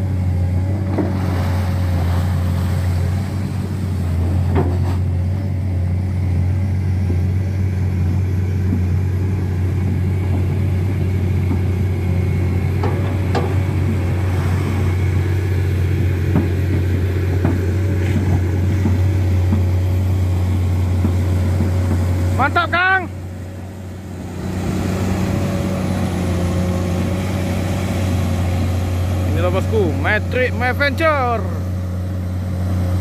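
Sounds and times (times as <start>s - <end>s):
excavator diesel engine running: 0.0s - 33.0s
short knocks: 12.8s - 14.1s.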